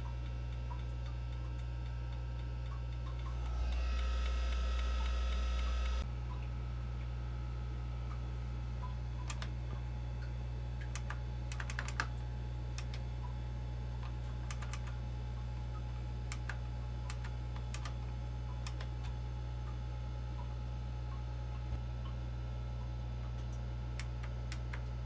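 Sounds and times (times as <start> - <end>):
computer humming: 0.0 - 25.0
computer keyboard key presses: 10.8 - 12.1, 14.4 - 15.0, 16.3 - 18.0, 18.6 - 19.1.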